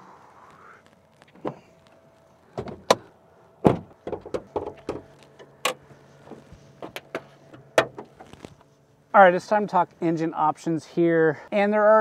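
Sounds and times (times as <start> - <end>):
car hood clicks and knocks: 2.6 - 8.3.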